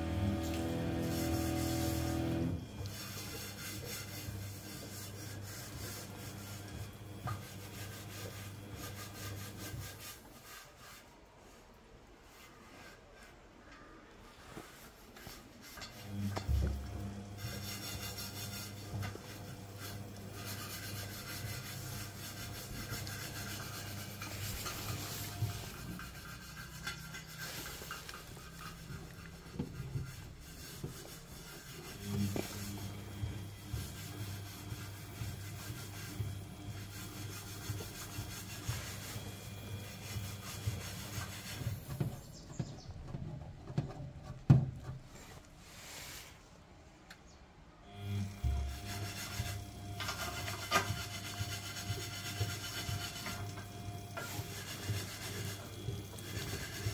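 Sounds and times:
washing machine drum motor humming: 0:00.0 - 0:10.4, 0:15.7 - 0:45.2, 0:47.9 - 0:56.9
water and laundry sloshing: 0:00.0 - 0:13.5, 0:14.4 - 0:46.6, 0:48.0 - 0:56.9.

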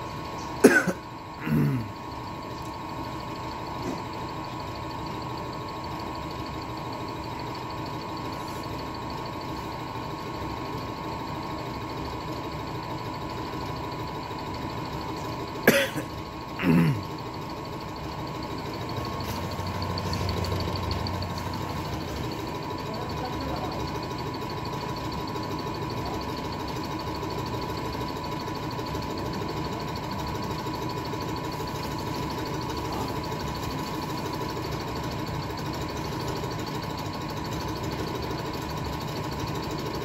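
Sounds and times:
cough-like sounds: 0:00.6 - 0:01.9, 0:15.6 - 0:17.1
hydraulic pump whining: 0:16.3 - 0:25.8.

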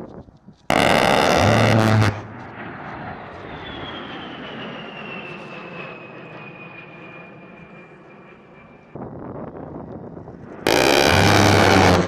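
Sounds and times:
rotary cannon buzzing burst: 0:00.7 - 0:02.8, 0:10.7 - 0:12.0
jet engine whine: 0:00.7 - 0:12.0.

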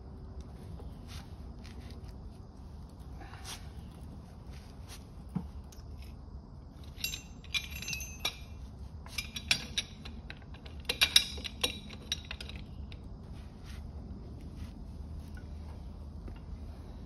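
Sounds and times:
metal wrench clinking: 0:06.8 - 0:13.1.

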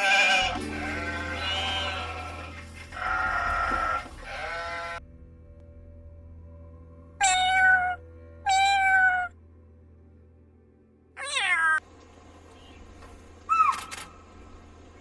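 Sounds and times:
sheep bleating: 0:00.0 - 0:05.0
cat meowing: 0:07.2 - 0:09.4, 0:11.2 - 0:11.8.

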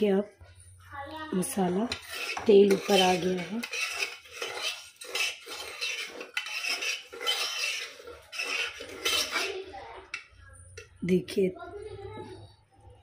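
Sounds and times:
ladle scraping pot bottom: 0:01.6 - 0:11.0.

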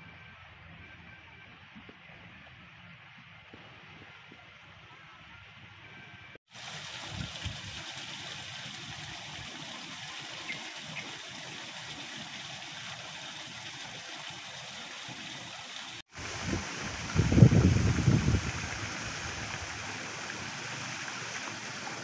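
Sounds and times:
steady rushing outdoor noise: 0:15.4 - 0:22.0.

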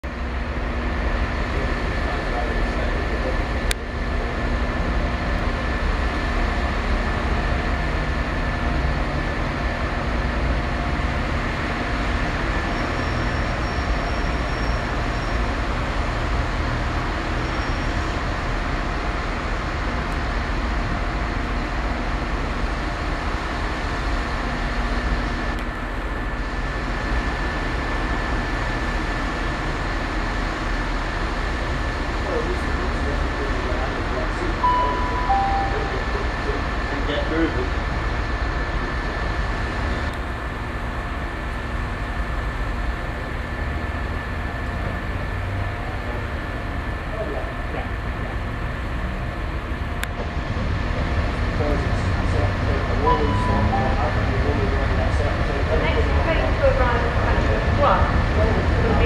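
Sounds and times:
diesel locomotive engine running: 0:00.0 - 0:59.0
steady high tone: 0:34.4 - 0:36.7, 0:52.7 - 0:55.3.

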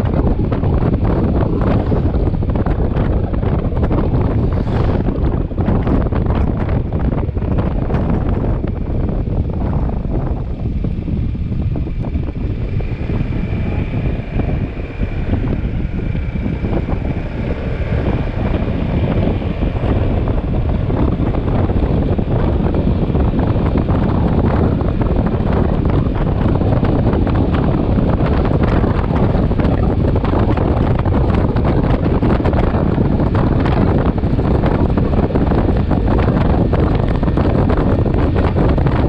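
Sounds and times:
motorcycle ride noise: 0:00.0 - 0:39.0
wind buffeting microphone: 0:00.0 - 0:39.0
faint high whine: 0:09.9 - 0:26.5.

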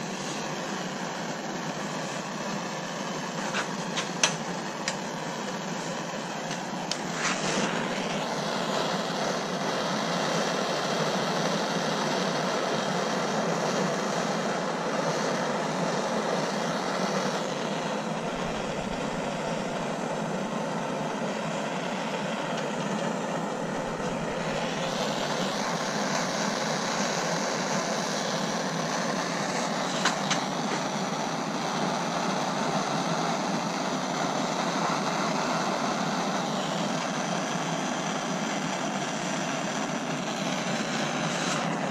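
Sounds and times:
gas torch flame hissing: 0:00.0 - 0:41.9.

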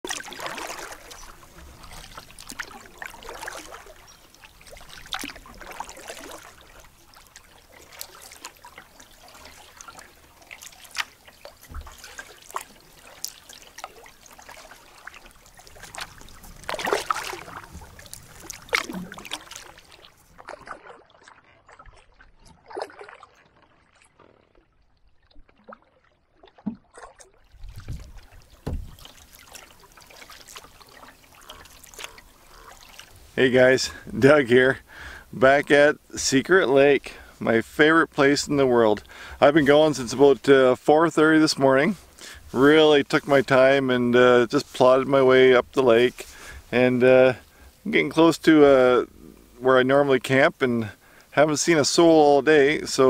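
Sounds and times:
canoe paddle splashing: 0:00.0 - 0:53.0
water dripping: 0:00.1 - 0:21.9, 0:27.6 - 0:34.0.

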